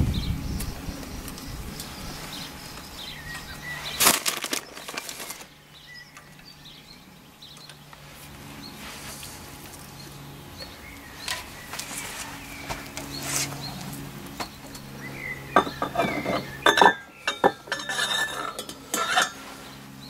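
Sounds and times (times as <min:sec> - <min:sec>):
small birds chirping: 0:00.0 - 0:20.0
metallic clattering: 0:15.6 - 0:19.5.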